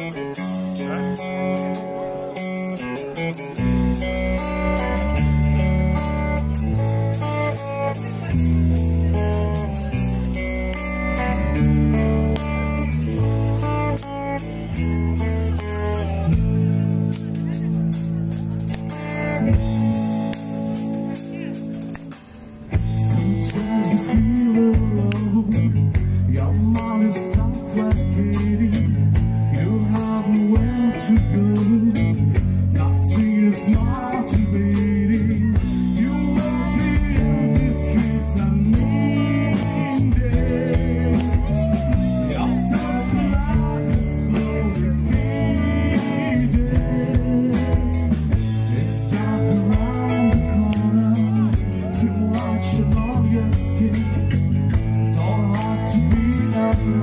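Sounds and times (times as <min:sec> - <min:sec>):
live rock band: 0:00.0 - 0:57.0
man singing: 0:22.7 - 0:57.0.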